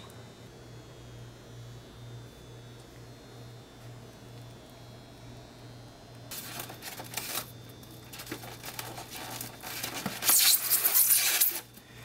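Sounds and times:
plastic wrapping crinkling: 0:06.3 - 0:11.8.

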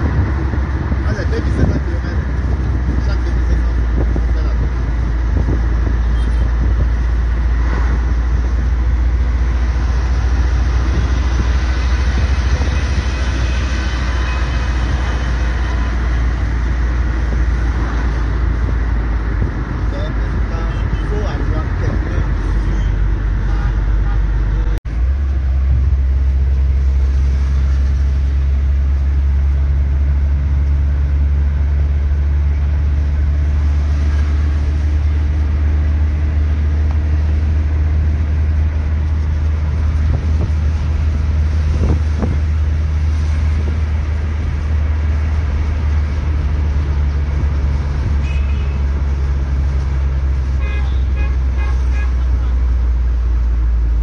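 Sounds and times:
car engine and road noise: 0:00.0 - 0:54.0
car horn toots: 0:48.2 - 0:48.8, 0:50.6 - 0:52.5.

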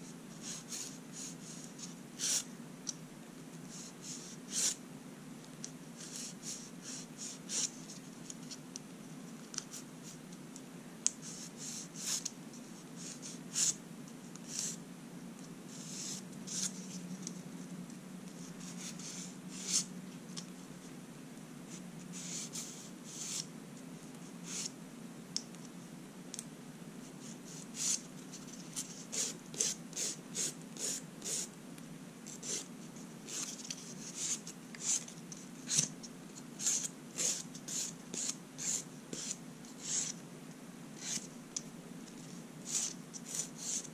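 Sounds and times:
steady low hum: 0:00.0 - 0:43.9
fingernail scratching strokes: 0:36.6 - 0:40.2.

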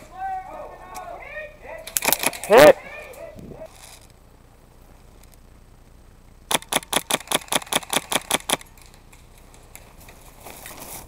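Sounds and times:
airsoft rifle rapid fire: 0:06.5 - 0:08.6.

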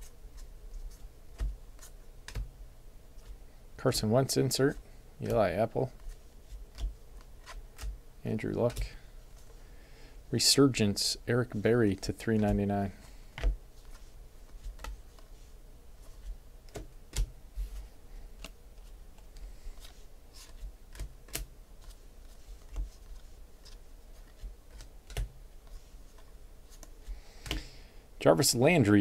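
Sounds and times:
cards flipped through by hand: 0:05.2 - 0:08.0, 0:13.4 - 0:27.7.

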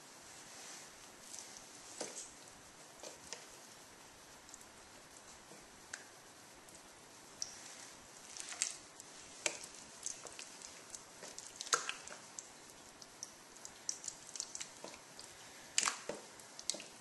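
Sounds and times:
wet squelches of marinated meat: 0:07.4 - 0:17.0.

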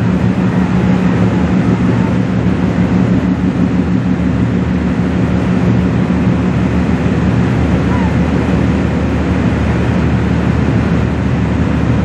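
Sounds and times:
ship engines droning: 0:00.0 - 0:12.0.

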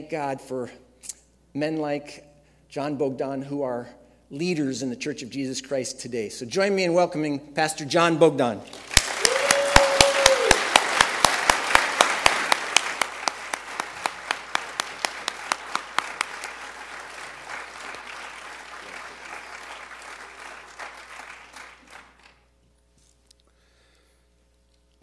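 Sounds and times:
close hands clapping steadily: 0:08.7 - 0:22.4
crowd applauding: 0:08.7 - 0:22.4.

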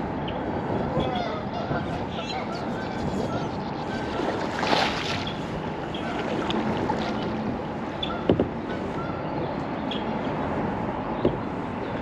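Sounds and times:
water lapping against kayak hull: 0:02.6 - 0:09.2.

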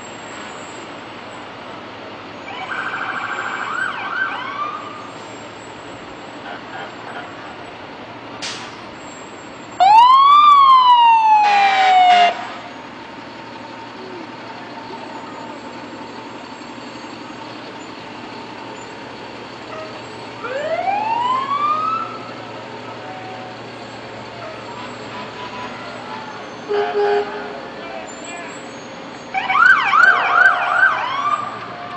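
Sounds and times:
street noise: 0:00.0 - 0:31.9
truck engines: 0:00.0 - 0:31.9
fire engine siren: 0:02.2 - 0:07.7, 0:09.2 - 0:31.9
short horn blasts: 0:24.7 - 0:27.7.

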